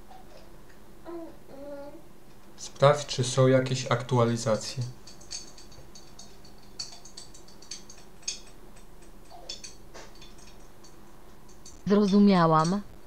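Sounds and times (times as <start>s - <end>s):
low hiss and hum: 0.0s - 13.0s.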